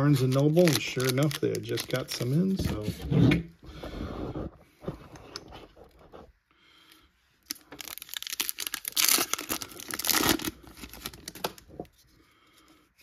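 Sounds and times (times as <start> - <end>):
foil wrapper tearing: 0.0 - 2.6, 7.5 - 11.6.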